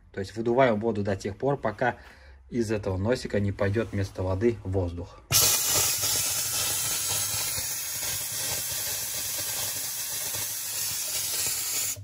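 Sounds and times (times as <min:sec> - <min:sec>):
tap spraying water and air: 0:05.3 - 0:12.0.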